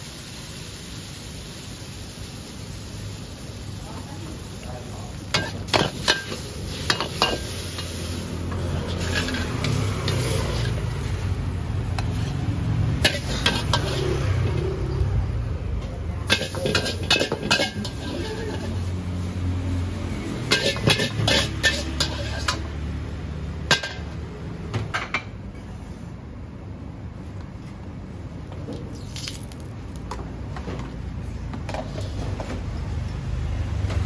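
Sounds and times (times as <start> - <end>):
spatula scraping and clanking wok: 4.5 - 15.0, 16.2 - 24.3.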